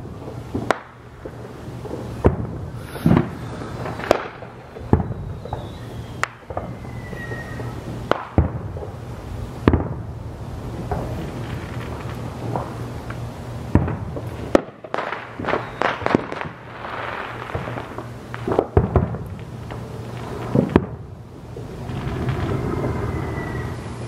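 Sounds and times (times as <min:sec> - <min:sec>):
firework shells booming: 0:00.0 - 0:23.8
firework crackle: 0:00.0 - 0:24.0.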